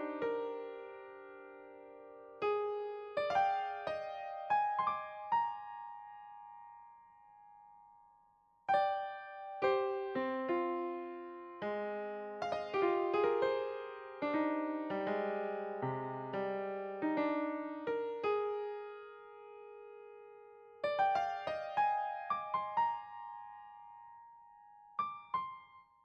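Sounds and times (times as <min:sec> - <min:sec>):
piano music: 0:08.7 - 0:25.7.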